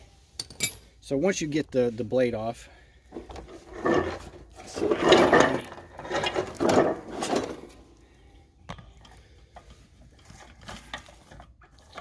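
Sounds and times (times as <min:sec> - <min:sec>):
metal clattering and scraping: 0:03.1 - 0:08.0, 0:09.0 - 0:12.0.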